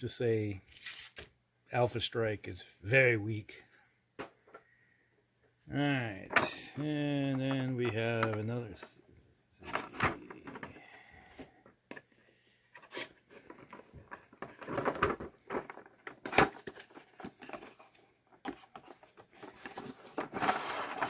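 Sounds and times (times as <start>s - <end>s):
cardboard packaging rustling: 0.7s - 1.3s, 12.8s - 21.0s.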